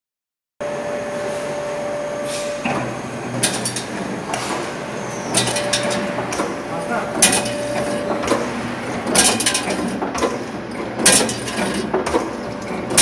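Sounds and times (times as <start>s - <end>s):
mechanical hum: 0.6s - 13.0s
press tooling metallic clacks: 2.6s - 13.0s.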